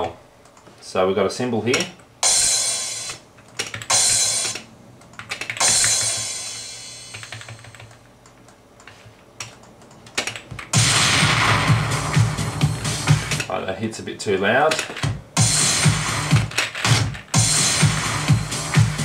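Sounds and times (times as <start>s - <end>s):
computer keyboard clicks: 3.4s - 3.9s, 7.2s - 10.7s
cymbal crash: 10.8s - 13.4s.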